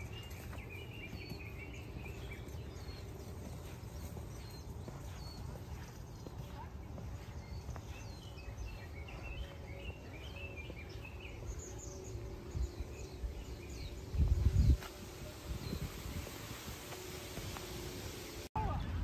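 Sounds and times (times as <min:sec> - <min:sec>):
small birds chirping: 0:00.0 - 0:18.9
low outdoor rumble: 0:00.0 - 0:19.0
loud rumble on microphone: 0:08.1 - 0:18.5.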